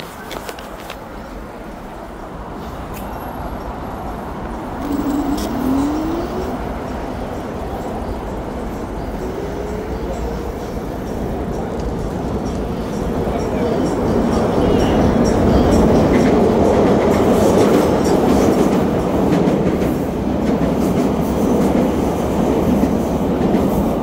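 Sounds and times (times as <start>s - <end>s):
street traffic rumble: 0.0s - 24.0s
vehicle engine rising in pitch: 4.6s - 7.1s.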